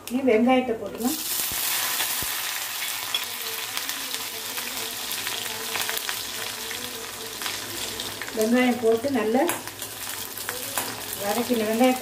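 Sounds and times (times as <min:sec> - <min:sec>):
onions sizzling in hot oil: 0:01.0 - 0:12.0.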